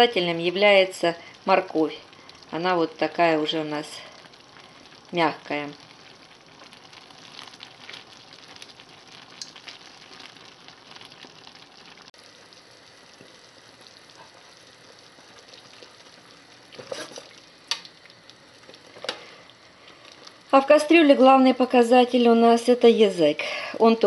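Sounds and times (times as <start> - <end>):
stew sizzling in frying pan: 0.0 - 24.0.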